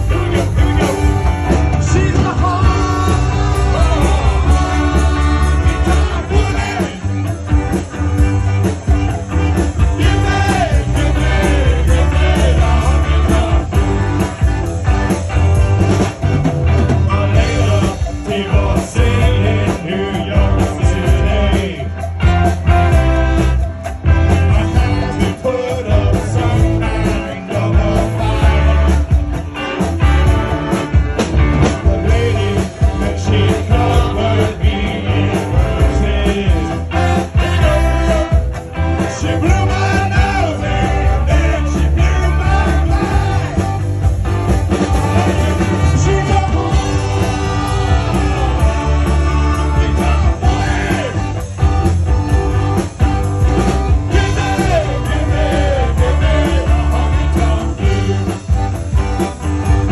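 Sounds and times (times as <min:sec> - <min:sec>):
person singing: 0:00.0 - 0:07.3, 0:31.9 - 0:43.8, 0:45.0 - 0:51.6, 0:53.9 - 0:59.2
trumpet: 0:00.0 - 0:19.0, 0:19.8 - 0:59.9
accordion: 0:00.0 - 0:59.9
drums: 0:00.0 - 0:59.9.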